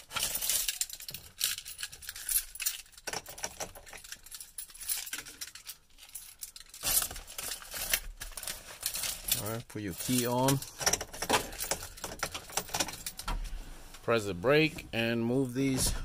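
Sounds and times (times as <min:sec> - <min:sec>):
keys jangling on a ring: 0:00.1 - 0:06.8.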